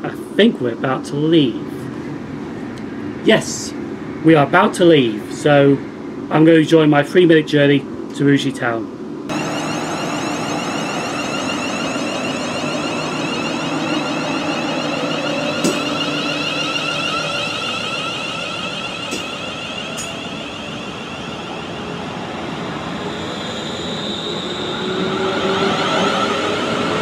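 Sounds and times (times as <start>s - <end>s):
train traction motor whine: 9.3s - 27.0s
wheel and rail noise: 9.3s - 27.0s.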